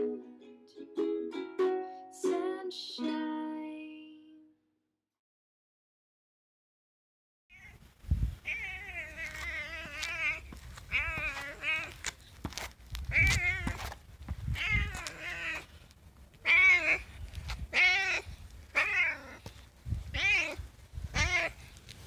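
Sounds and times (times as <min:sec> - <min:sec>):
cat meowing: 0:07.5 - 0:07.8, 0:08.4 - 0:12.0, 0:13.1 - 0:13.9, 0:14.5 - 0:15.7, 0:16.4 - 0:19.5, 0:20.1 - 0:21.7.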